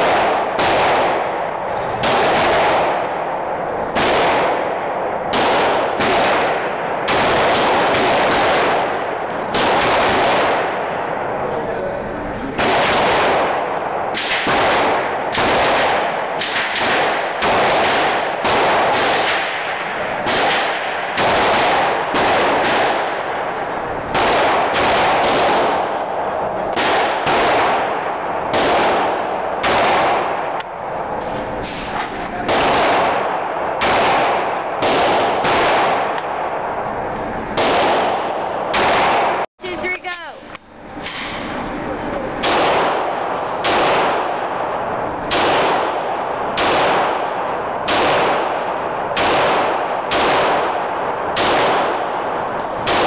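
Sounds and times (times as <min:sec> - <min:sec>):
pistol shots echoing indoors: 0:00.0 - 0:11.3, 0:12.6 - 0:36.8, 0:37.5 - 0:39.5, 0:42.4 - 0:53.0.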